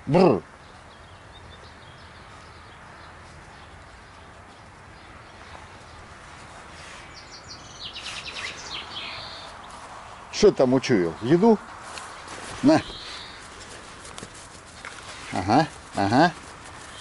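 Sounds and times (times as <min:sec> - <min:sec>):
outdoor background noise: 0:00.0 - 0:17.0
small bird chirping: 0:07.0 - 0:09.8, 0:12.2 - 0:13.6.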